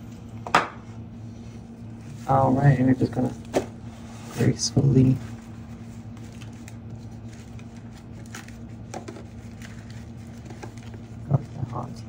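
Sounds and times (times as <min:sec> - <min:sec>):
steady low hum: 0:00.0 - 0:12.0
dough sheets rustling in foil pan: 0:04.0 - 0:11.9.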